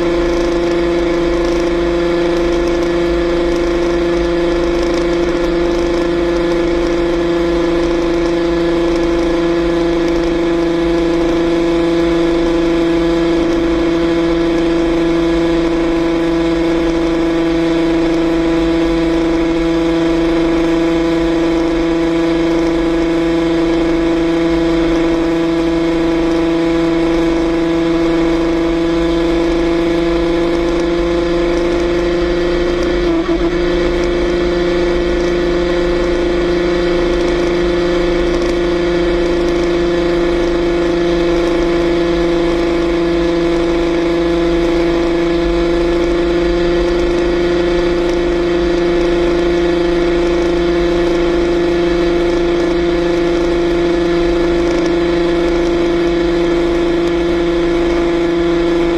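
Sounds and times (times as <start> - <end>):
two-stroke engine running: 0.0 - 58.9.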